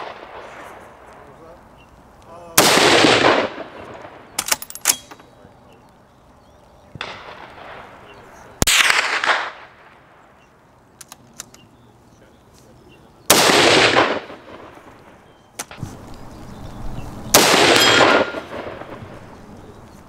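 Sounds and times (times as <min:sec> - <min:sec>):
rifle shots with echo: 0:00.0 - 0:01.3, 0:02.6 - 0:05.2, 0:06.9 - 0:10.5, 0:13.3 - 0:15.8, 0:17.3 - 0:19.3
fainter gunshot: 0:02.6 - 0:04.0, 0:08.6 - 0:09.7, 0:13.3 - 0:14.7, 0:17.3 - 0:19.1
metallic clicks of rifle bolt: 0:04.4 - 0:05.3, 0:11.0 - 0:11.6.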